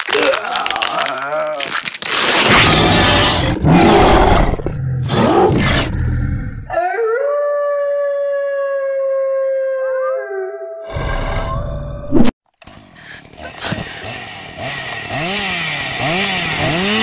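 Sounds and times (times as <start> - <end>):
harsh growling and roaring: 2.3 - 6.8, 10.8 - 12.3
wolf-like howl: 6.6 - 12.2.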